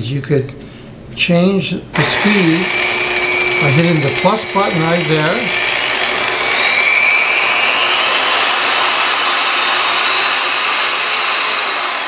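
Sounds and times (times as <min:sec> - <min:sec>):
polisher motor whine rising: 0:02.0 - 0:12.0.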